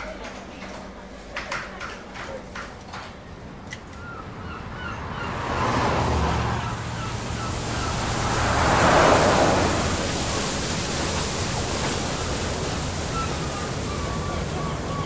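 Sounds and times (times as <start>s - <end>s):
faint bird chirps: 0.0s - 4.2s
car driving past: 5.4s - 12.0s.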